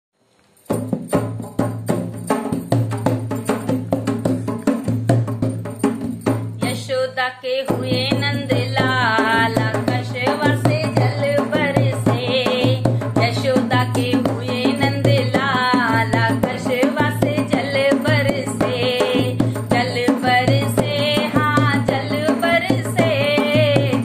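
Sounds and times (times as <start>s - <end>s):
hand drum folk rhythm: 0.7s - 24.0s
woman singing: 6.6s - 24.0s.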